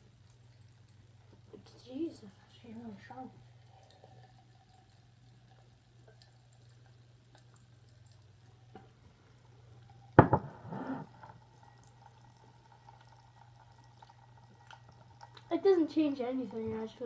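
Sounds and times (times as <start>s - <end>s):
faint steady hum: 0.0s - 17.0s
glass knocking on hard surface: 10.2s - 11.0s.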